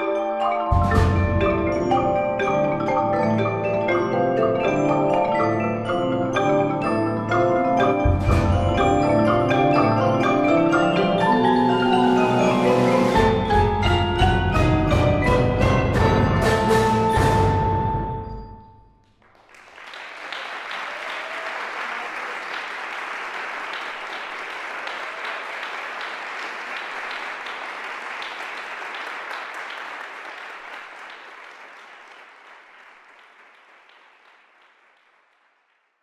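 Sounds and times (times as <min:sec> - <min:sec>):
percussion ensemble notes ringing: 0:00.0 - 0:18.9
audience applause: 0:19.2 - 0:35.9.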